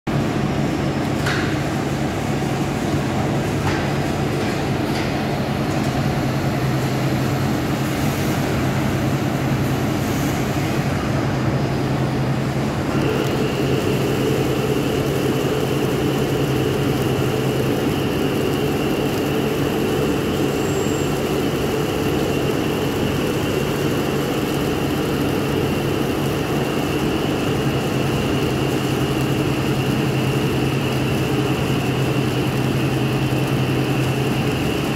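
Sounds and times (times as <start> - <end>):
high whine: 0.1 - 34.9
lathe machine hum: 0.1 - 34.9.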